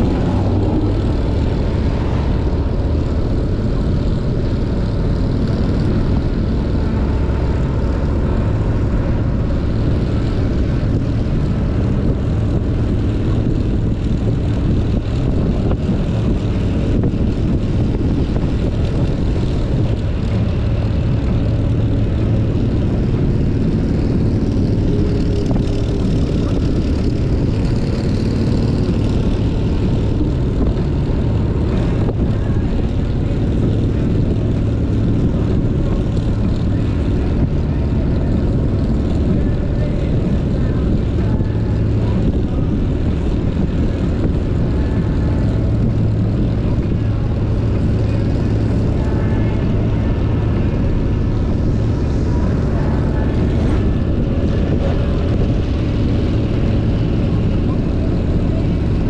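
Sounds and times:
motorcycle engine cruising: 0.0s - 59.0s
wind noise on microphone: 0.0s - 59.0s.

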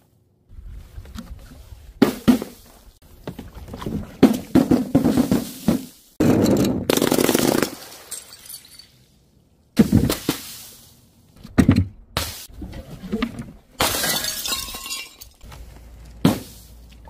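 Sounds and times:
balloons and bottles smashing: 4.2s - 8.5s, 13.8s - 15.4s.

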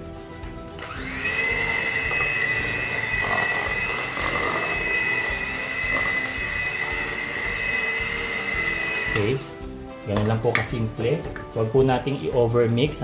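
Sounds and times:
electric mixer motor whine: 0.8s - 9.5s.

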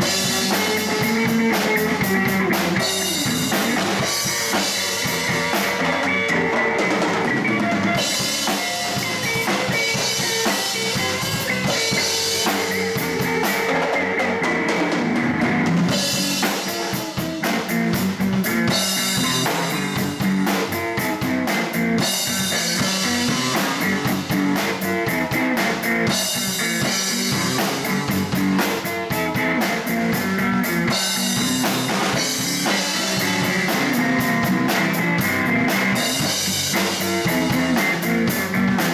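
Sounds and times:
drum kit with cymbals: 0.0s - 38.9s
electric bass: 0.0s - 38.9s
electric guitar: 0.0s - 38.9s.

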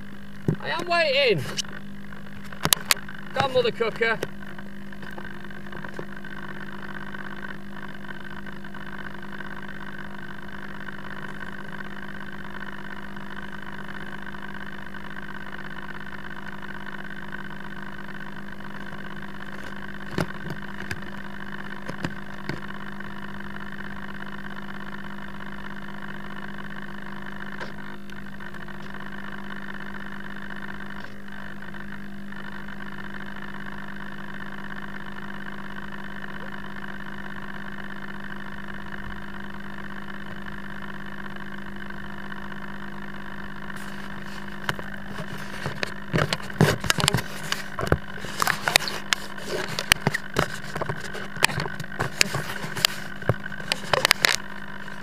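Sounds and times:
steady electrical hum: 0.0s - 7.9s.

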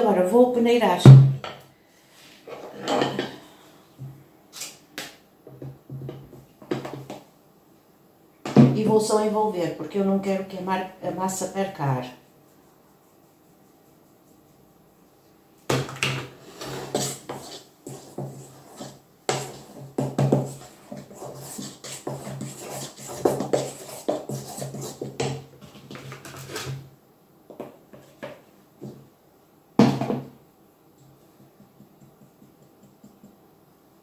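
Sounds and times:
utensil scraping steel bowl: 16.4s - 26.8s
light taps: 31.0s - 33.4s.

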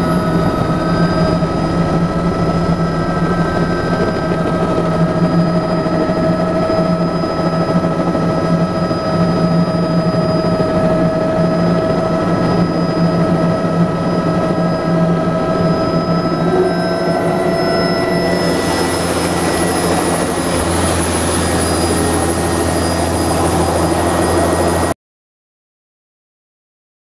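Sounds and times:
helicopter turbine whine and rotor: 0.0s - 25.0s.

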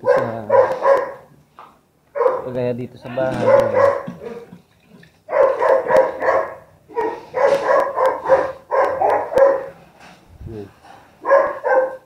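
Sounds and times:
dogs barking: 0.0s - 1.4s, 2.1s - 2.6s, 3.2s - 9.8s, 11.2s - 12.0s.

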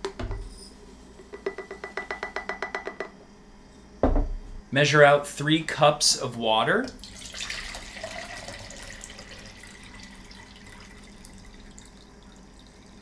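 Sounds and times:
water pouring into a cup: 6.9s - 13.0s.

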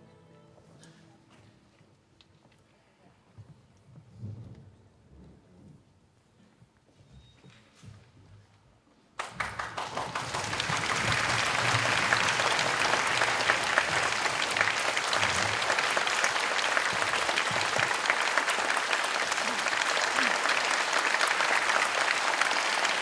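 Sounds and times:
audience applause: 9.2s - 23.0s.

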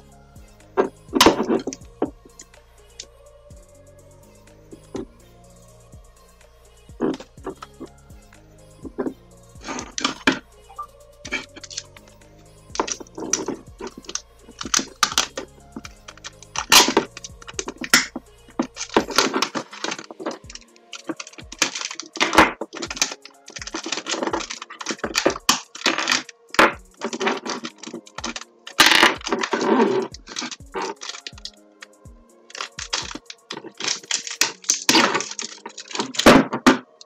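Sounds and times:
background music: 0.0s - 37.0s
hands handling wires and tape: 12.8s - 37.0s.

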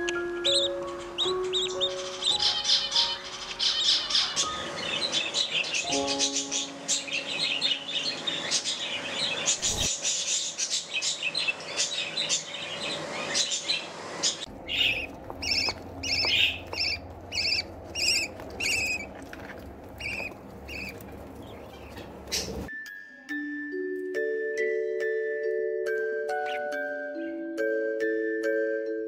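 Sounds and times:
budgerigars chirping: 0.0s - 22.7s.

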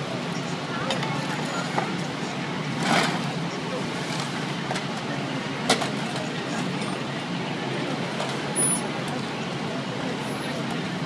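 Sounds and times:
heavy vehicles idling: 0.0s - 11.0s
street noise: 0.0s - 11.0s.

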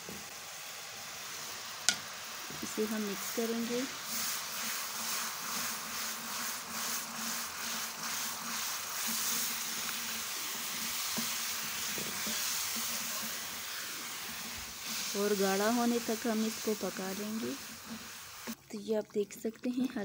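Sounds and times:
sugar syrup sizzling and bubbling: 0.0s - 20.0s
wooden spoon stirring: 2.5s - 18.6s.

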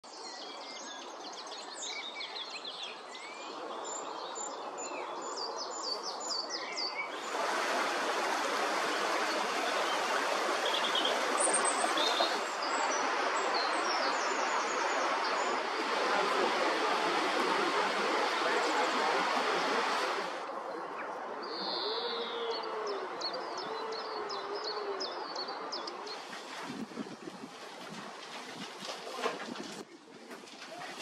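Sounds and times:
small birds singing: 0.1s - 7.4s, 8.7s - 16.0s, 20.6s - 27.4s
river flowing: 7.0s - 20.7s.

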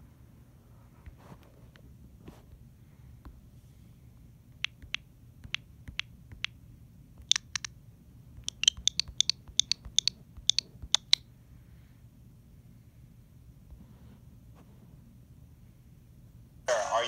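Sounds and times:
faint low hum: 0.0s - 17.0s
sharp clicks: 4.6s - 6.6s, 7.2s - 7.8s, 8.4s - 11.2s.

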